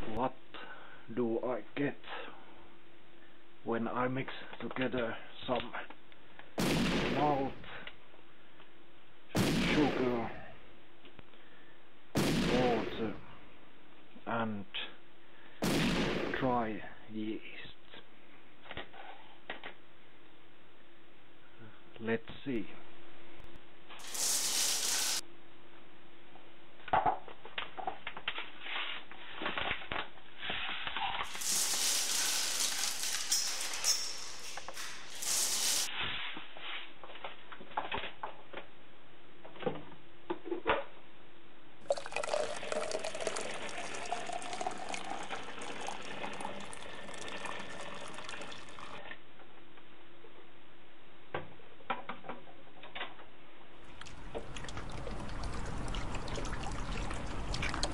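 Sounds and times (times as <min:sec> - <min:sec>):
paper bags rustling: 0:24.0 - 0:25.2, 0:31.2 - 0:36.0
powder pouring into plastic tub: 0:24.0 - 0:25.2, 0:31.2 - 0:33.9, 0:34.5 - 0:35.9, 0:41.9 - 0:49.0
water pouring into tub: 0:24.0 - 0:25.2, 0:31.3 - 0:33.4, 0:41.9 - 0:49.0, 0:54.0 - 0:57.9.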